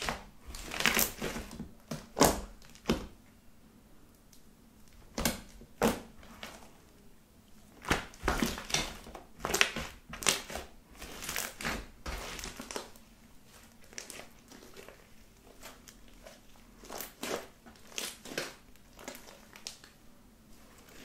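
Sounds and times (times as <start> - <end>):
sticky slime pops and crackles: 0.0 - 3.1, 7.8 - 12.9.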